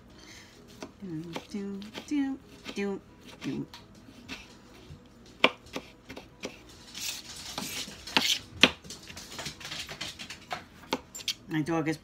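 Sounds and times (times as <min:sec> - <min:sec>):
knife chopping on cutting board: 0:00.7 - 0:08.8
knife scraping on board: 0:01.3 - 0:08.8.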